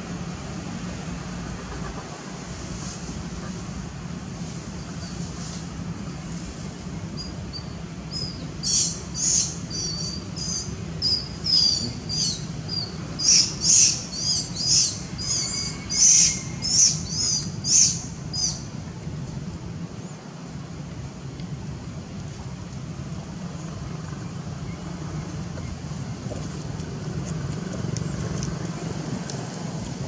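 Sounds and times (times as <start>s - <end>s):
bird chirping: 7.1s - 18.7s.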